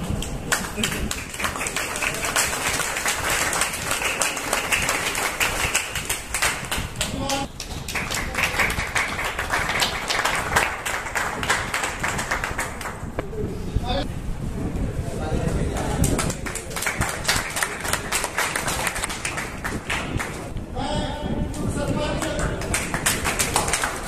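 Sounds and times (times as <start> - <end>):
audience clapping: 0.0 - 13.2, 15.7 - 20.6, 22.1 - 24.0.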